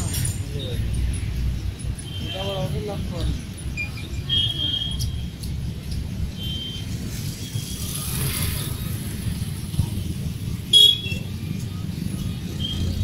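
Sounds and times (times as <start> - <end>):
low rumble of traffic: 0.0 - 13.0
vehicle passing: 7.7 - 10.7.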